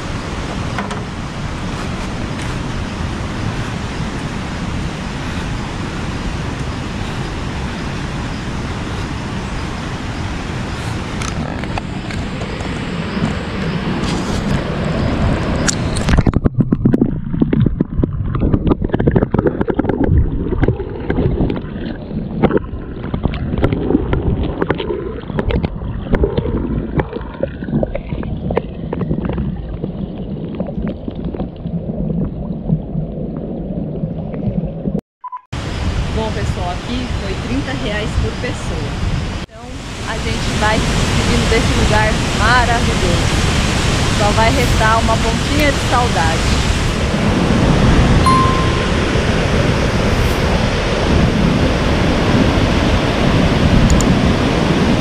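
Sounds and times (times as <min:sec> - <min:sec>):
underwater gurgling and knocks: 0:00.0 - 0:03.7, 0:15.6 - 0:35.0
river water rushing: 0:00.0 - 0:15.7, 0:39.2 - 0:49.8.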